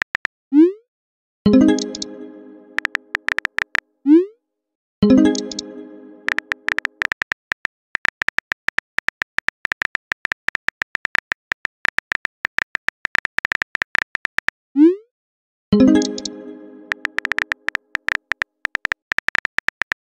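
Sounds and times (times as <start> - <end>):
phone keyboard tapping clicks: 0.0 - 0.3, 2.8 - 3.8, 6.3 - 14.5, 16.9 - 20.0.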